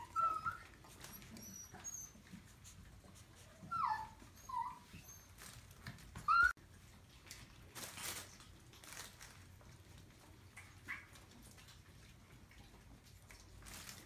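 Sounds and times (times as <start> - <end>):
puppies whimpering and yipping: 0.0 - 6.6.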